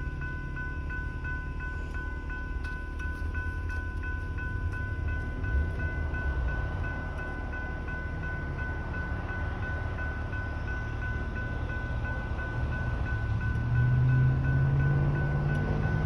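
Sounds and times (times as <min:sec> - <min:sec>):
crossing bells ringing: 0:00.0 - 0:16.0.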